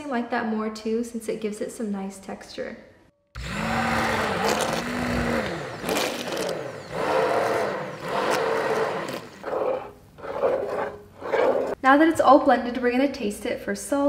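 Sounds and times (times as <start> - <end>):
immersion blender motor whirring: 3.4 - 11.8.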